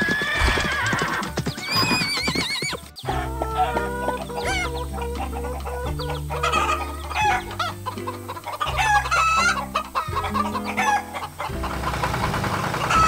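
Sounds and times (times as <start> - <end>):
hens clucking: 0.0 - 13.0
music of held low notes: 2.8 - 13.0
rooster crowing: 3.1 - 7.7, 8.5 - 11.3.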